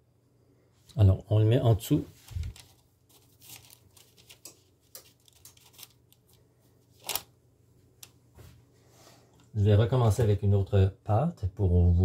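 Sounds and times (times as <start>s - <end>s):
rustling of pastry: 2.0s - 9.3s.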